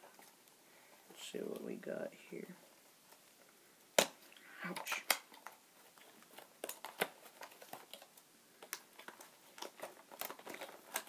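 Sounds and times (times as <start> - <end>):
packaging clicking and crinkling: 4.8 - 11.0.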